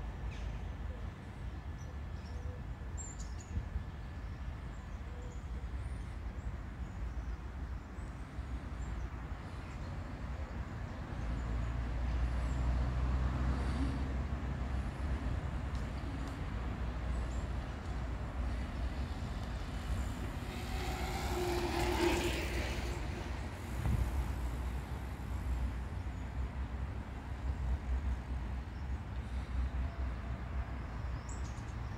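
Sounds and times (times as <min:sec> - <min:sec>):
traffic rumble: 0:03.6 - 0:31.9
vehicle passing with held tone: 0:11.3 - 0:17.6, 0:18.2 - 0:26.1.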